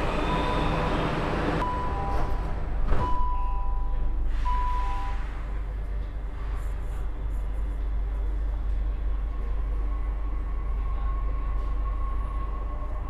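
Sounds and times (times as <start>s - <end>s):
train hum: 0.0s - 13.0s
door-closing warning beeps: 1.6s - 5.3s.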